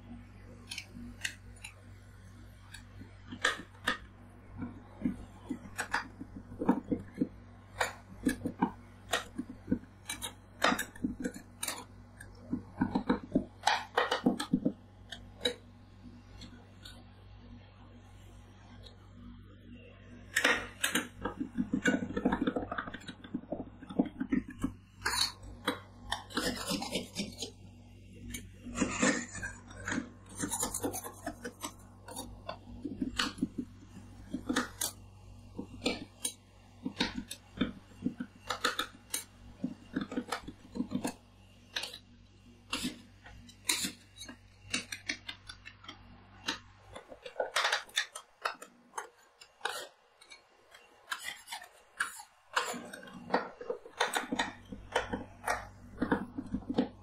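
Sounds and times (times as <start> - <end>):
low steady hum: 0.0 - 57.0
metal spatulas tapping and scraping: 28.7 - 33.6, 46.5 - 57.0.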